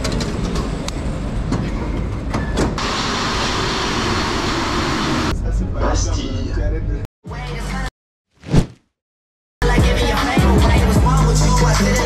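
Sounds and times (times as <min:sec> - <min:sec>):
train hissing and rumbling: 0:02.8 - 0:05.3.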